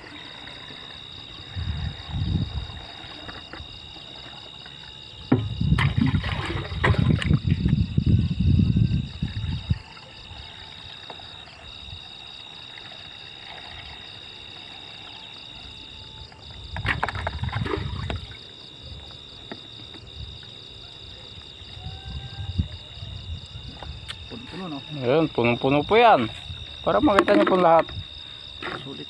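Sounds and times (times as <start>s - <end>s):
crickets trilling: 0.0s - 29.0s
plastic pail knocks: 5.3s - 7.4s, 27.0s - 28.0s
liquid sloshing and pouring: 5.4s - 7.8s, 12.7s - 15.0s, 16.8s - 18.4s.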